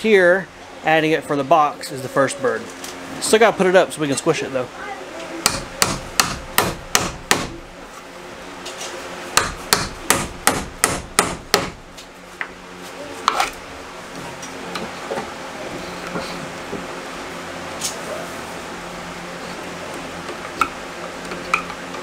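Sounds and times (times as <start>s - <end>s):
hammer blows on wood: 5.4s - 7.6s.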